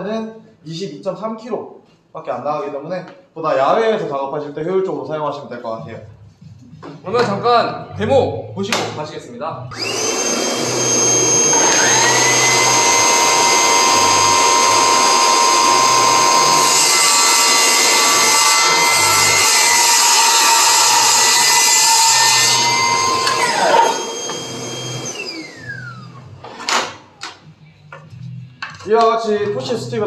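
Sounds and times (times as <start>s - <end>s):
saw cutting board: 9.7s - 26.7s
table saw whining: 9.7s - 26.7s
saw blade spinning down: 9.8s - 26.2s.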